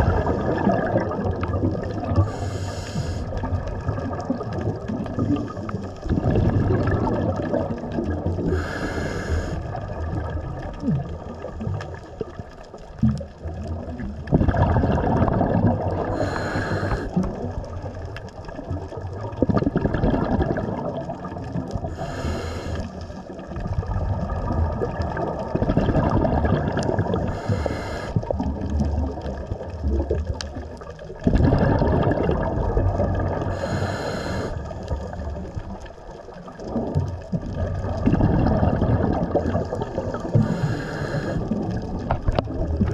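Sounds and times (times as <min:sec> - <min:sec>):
gurgling exhaled bubbles: 0:00.0 - 0:42.9
regulator inhale hiss: 0:02.2 - 0:03.5, 0:08.5 - 0:09.8, 0:16.1 - 0:17.2, 0:21.8 - 0:23.2, 0:27.3 - 0:28.3, 0:33.5 - 0:34.9, 0:40.1 - 0:41.6.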